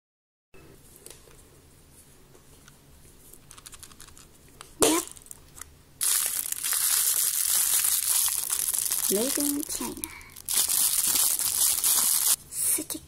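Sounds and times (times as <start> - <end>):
plastic bag crinkling: 3.4 - 4.3, 5.0 - 12.4.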